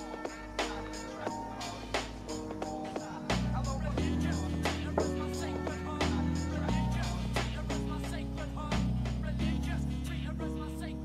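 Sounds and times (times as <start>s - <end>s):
held chord notes: 0.0s - 11.0s.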